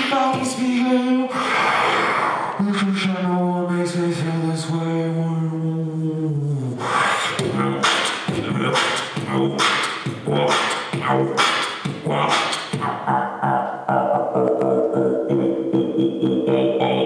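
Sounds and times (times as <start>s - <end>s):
person beatboxing: 0.0s - 17.0s
hummed pitched line: 7.2s - 17.0s.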